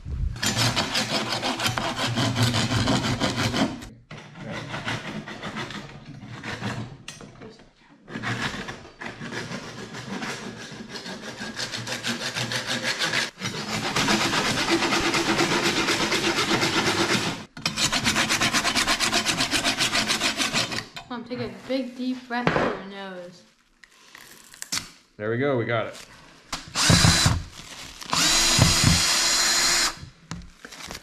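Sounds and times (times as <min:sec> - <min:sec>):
hand saw cutting bone: 0:00.4 - 0:06.8, 0:08.1 - 0:20.9.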